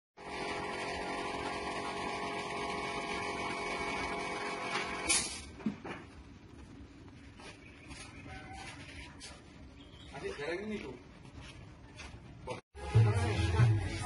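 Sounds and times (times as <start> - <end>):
steady machine hum: 0.2 - 5.1.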